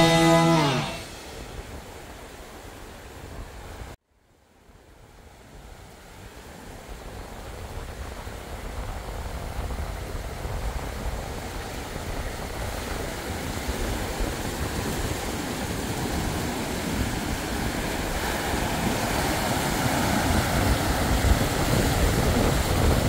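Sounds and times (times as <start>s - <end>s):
surf breaking on a beach: 0.0s - 4.0s, 5.0s - 23.0s
wind buffeting the microphone: 5.5s - 23.0s.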